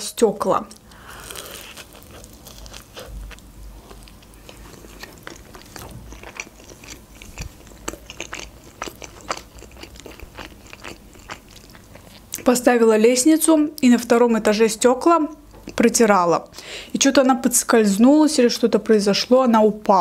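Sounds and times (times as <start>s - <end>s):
chewing with mouth clicks: 0.8s - 12.5s.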